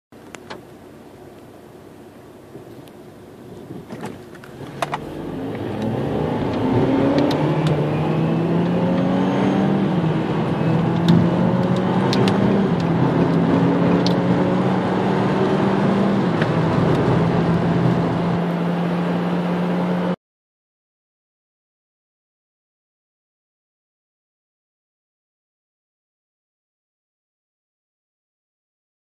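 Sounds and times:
car engine accelerating: 3.6s - 20.2s.

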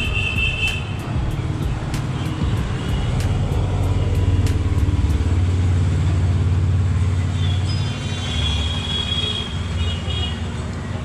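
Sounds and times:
vehicle engine running: 0.0s - 7.2s.

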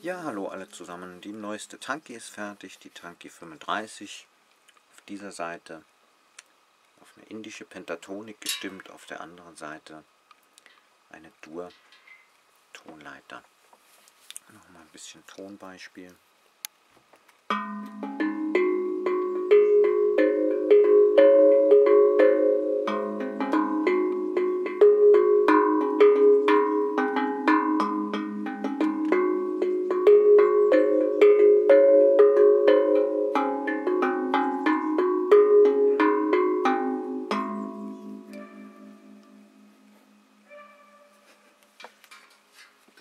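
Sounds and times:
steel tongue drum melody: 17.5s - 40.6s.

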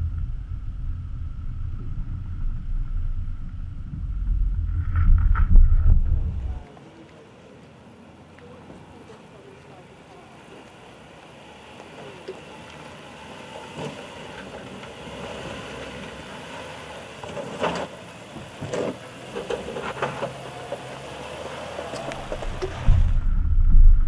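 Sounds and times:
sharp crackles and knocks: 0.0s - 6.5s, 22.0s - 24.0s
engine running low: 0.0s - 24.0s.

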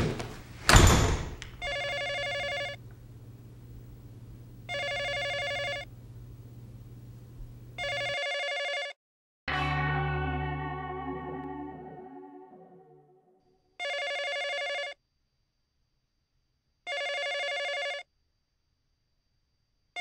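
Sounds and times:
telephone ringing: 1.6s - 2.8s, 4.7s - 5.9s, 7.8s - 9.0s, 13.8s - 15.0s, 16.9s - 18.0s
steady low hum: 2.8s - 7.8s.

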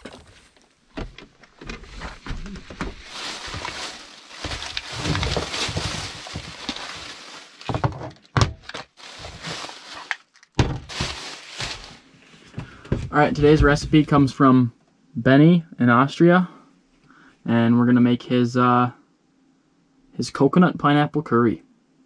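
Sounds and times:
plastic bag rustling: 1.6s - 12.6s
items knocking on wooden counter: 7.6s - 8.7s.

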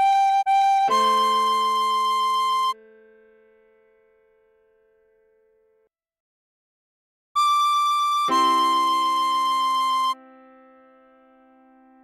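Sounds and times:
keyboard chord: 0.0s - 5.8s, 8.3s - 12.0s.

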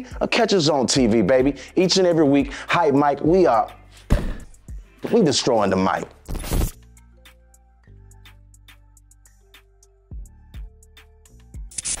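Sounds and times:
deep kick drum thumps: 4.1s - 4.6s.

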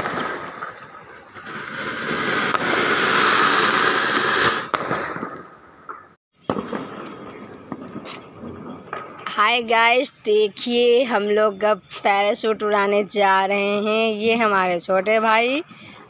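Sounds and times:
firework spraying sparks: 0.0s - 5.4s
sharp crackles: 0.0s - 10.0s.

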